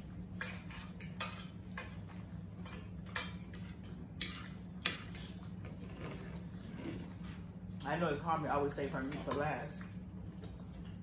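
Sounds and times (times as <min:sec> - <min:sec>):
cutlery clicking against plates: 0:00.4 - 0:05.2, 0:08.9 - 0:09.6.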